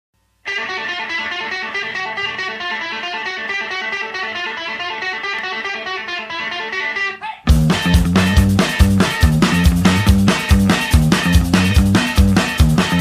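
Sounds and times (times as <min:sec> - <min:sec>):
guitar picked notes: 0:00.4 - 0:13.0.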